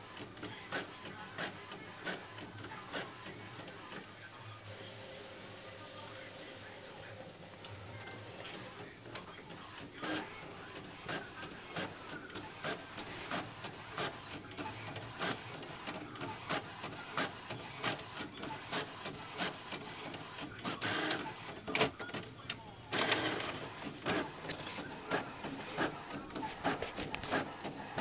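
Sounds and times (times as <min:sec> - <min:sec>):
inkjet printer printing: 0:00.0 - 0:28.0
printer clicking: 0:08.4 - 0:28.0.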